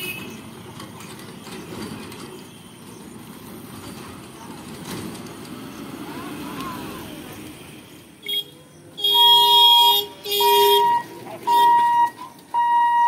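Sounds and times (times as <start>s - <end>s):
road traffic din: 0.0s - 13.0s
minivan engine passing: 0.5s - 8.2s.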